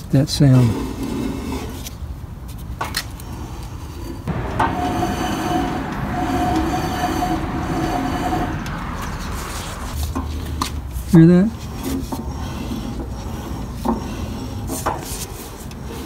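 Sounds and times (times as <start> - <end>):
mower spindle grinding whine: 4.3 - 10.8.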